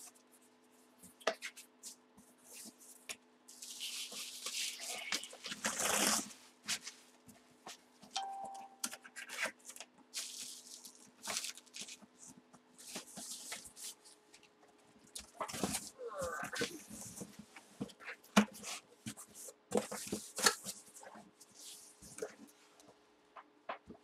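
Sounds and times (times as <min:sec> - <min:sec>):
cardboard packaging rustling: 0:03.6 - 0:07.0, 0:08.9 - 0:14.0.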